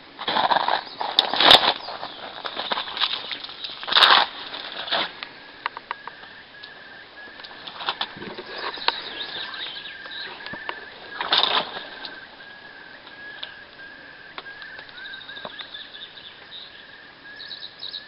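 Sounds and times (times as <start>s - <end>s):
noisy rustles: 0.0s - 17.4s
bird calling repeated note: 5.6s - 18.0s.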